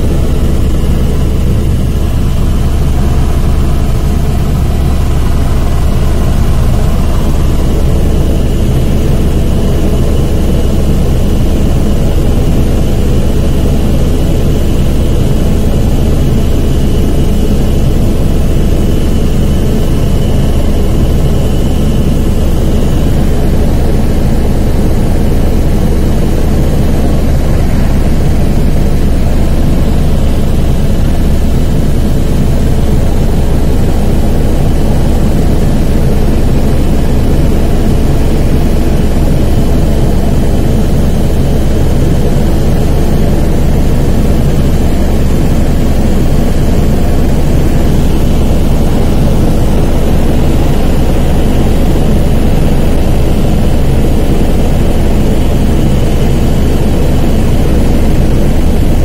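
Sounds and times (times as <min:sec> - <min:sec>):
helicopter engine and rotor drone: 0:00.0 - 0:59.0
thin high whine: 0:00.0 - 0:59.0.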